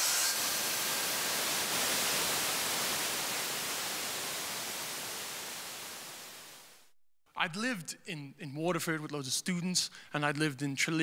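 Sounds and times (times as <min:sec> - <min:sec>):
steady rushing hiss: 0:00.0 - 0:06.8.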